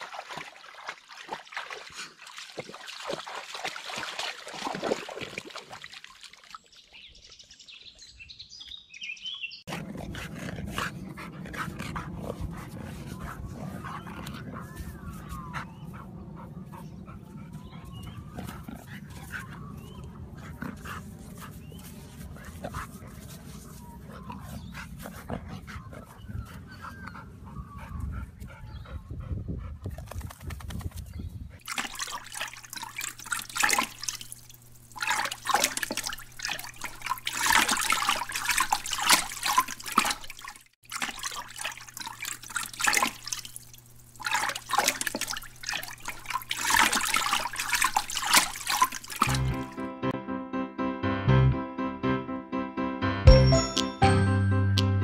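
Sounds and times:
water splashing around dog: 0:00.0 - 0:07.1, 0:31.6 - 0:49.7.

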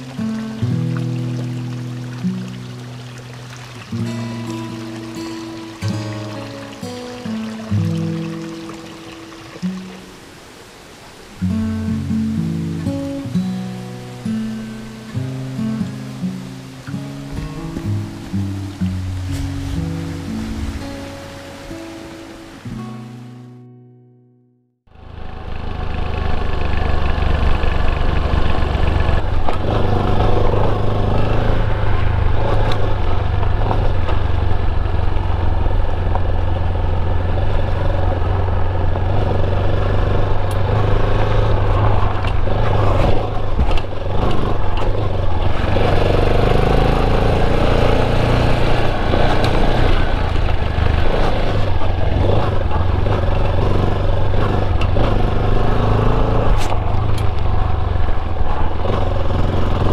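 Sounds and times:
motorcycle engine drone: 0:24.9 - 0:59.9.

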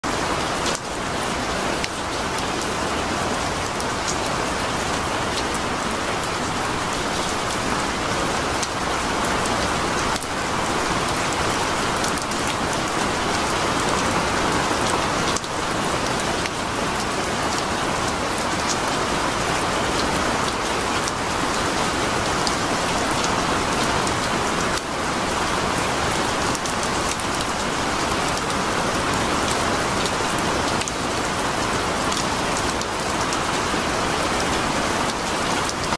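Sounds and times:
steady rain hiss: 0:00.1 - 0:35.9.

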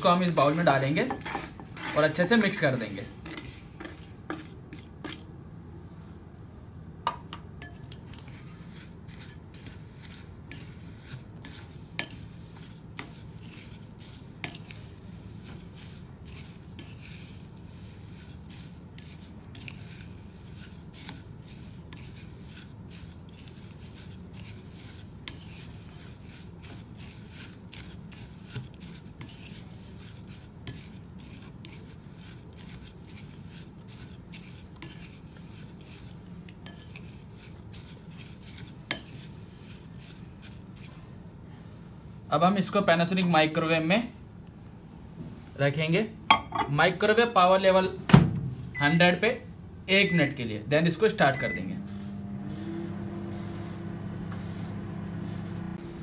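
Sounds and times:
low steady hum: 0:00.0 - 0:56.0
spatula scraping in glass bowl: 0:00.2 - 0:05.2, 0:07.6 - 0:41.1.

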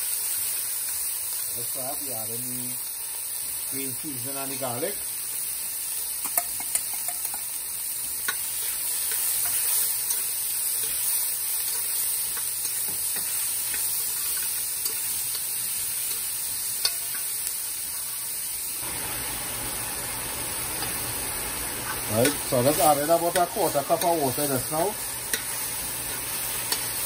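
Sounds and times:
vegetables sizzling in hot oil: 0:00.0 - 0:27.0.

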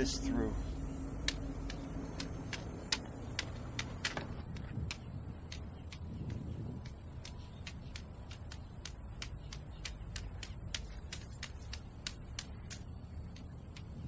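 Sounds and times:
low rumble: 0:00.0 - 0:07.1
cane tapping on pavement: 0:00.6 - 0:14.0.

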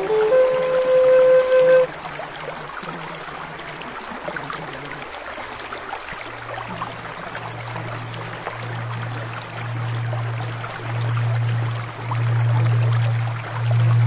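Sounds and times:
running water: 0:00.0 - 0:14.0
low droning tone: 0:07.4 - 0:14.0.

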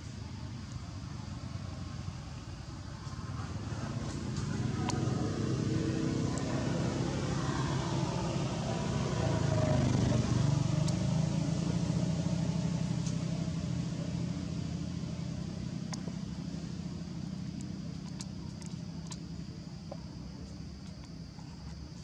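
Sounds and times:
low engine hum: 0:00.0 - 0:22.0
faint clicks: 0:17.5 - 0:22.0.

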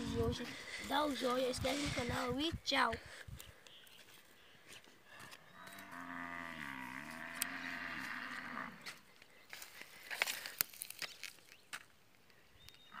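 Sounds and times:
cow mooing: 0:05.6 - 0:08.8.

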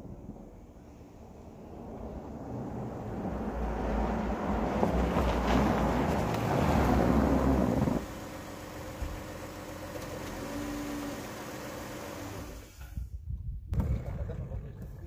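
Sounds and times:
minivan engine idling: 0:05.8 - 0:12.8
wind on microphone: 0:12.9 - 0:15.0.

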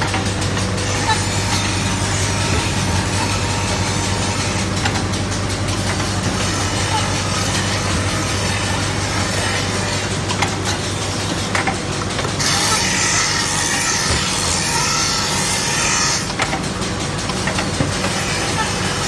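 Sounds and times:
low motor hum: 0:00.0 - 0:19.0.

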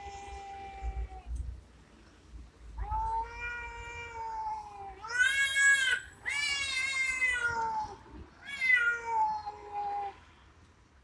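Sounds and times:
cats yowling: 0:02.8 - 0:10.2.

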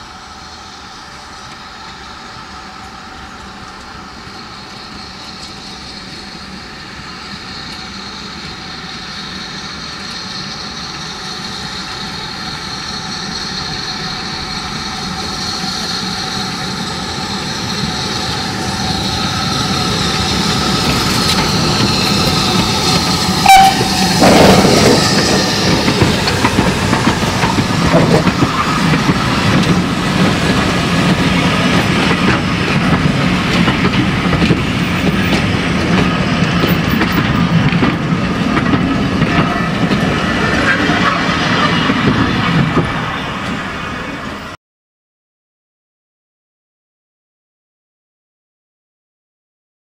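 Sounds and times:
steam locomotive passing: 0:00.0 - 0:44.6
wheels clattering over rail joints: 0:19.9 - 0:43.0.

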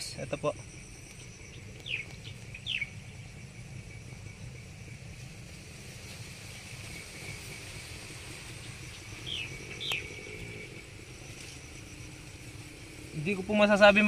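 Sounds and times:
high insect drone: 0:00.0 - 0:14.0
bird chirps: 0:00.1 - 0:03.4, 0:08.6 - 0:12.5.

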